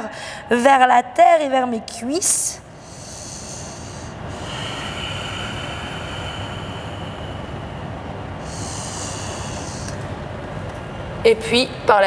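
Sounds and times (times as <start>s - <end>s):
woman breathing slowly: 0.0s - 0.5s, 2.7s - 10.6s.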